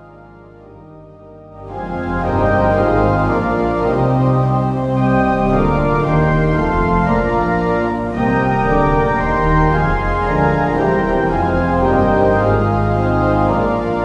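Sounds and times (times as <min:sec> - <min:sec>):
organ playing slow chords: 0:00.0 - 0:14.0.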